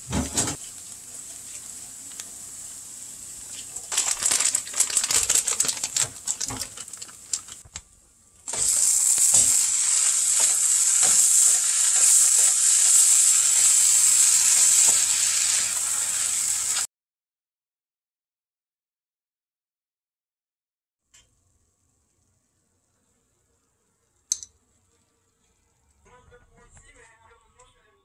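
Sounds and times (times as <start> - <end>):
food sizzling in a skillet: 0.0 - 7.6, 8.5 - 16.9
crackling of cheese in pan: 3.3 - 13.7.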